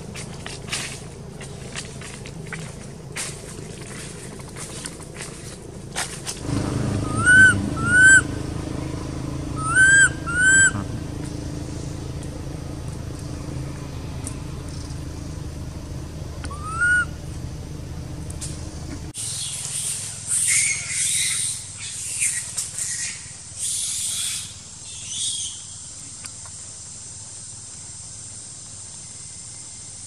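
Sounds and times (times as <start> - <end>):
steady low hum: 0.0 - 20.3
macaque coo calls: 7.0 - 8.4, 9.6 - 11.1, 16.4 - 17.1.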